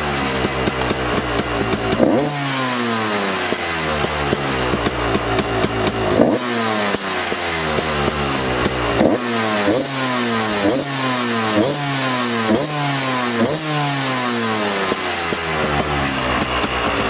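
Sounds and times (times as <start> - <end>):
two-stroke engine revving: 0.0 - 17.0.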